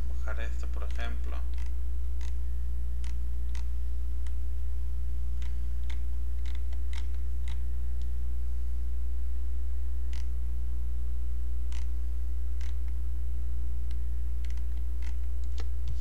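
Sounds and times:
steady low hum: 0.0s - 16.0s
computer mouse clicks: 0.8s - 2.4s, 3.0s - 4.4s, 5.4s - 8.1s, 10.1s - 10.3s, 11.7s - 11.9s, 12.6s - 13.0s, 13.8s - 16.0s.

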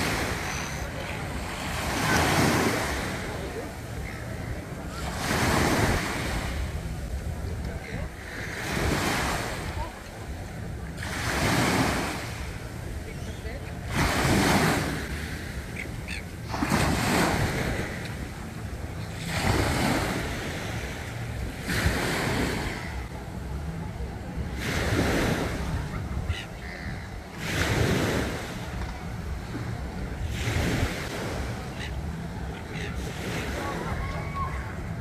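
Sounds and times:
small waves breaking on beach: 0.0s - 23.8s.

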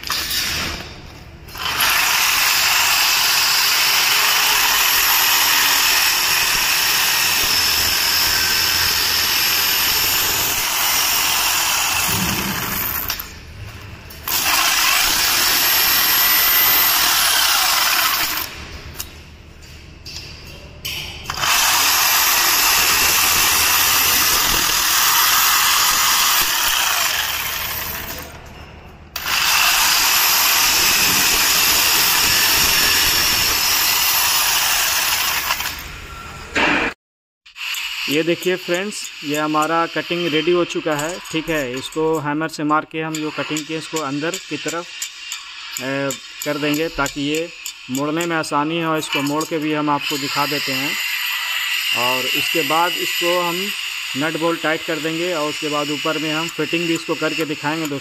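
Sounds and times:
jigsaw cutting sheet metal: 1.5s - 13.3s, 14.2s - 18.6s, 21.3s - 28.3s, 29.2s - 35.8s, 49.0s - 58.0s.

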